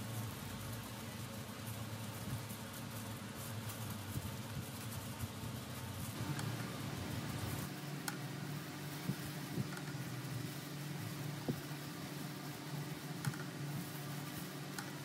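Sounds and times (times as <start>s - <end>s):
plastic gloves rustling: 0.0s - 15.0s
low machine hum: 6.1s - 15.0s.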